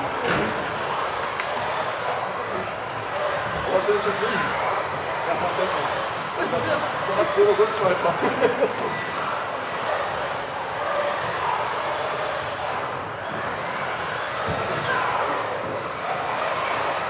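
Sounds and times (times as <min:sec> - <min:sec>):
rc car motors whining: 0:00.0 - 0:17.0.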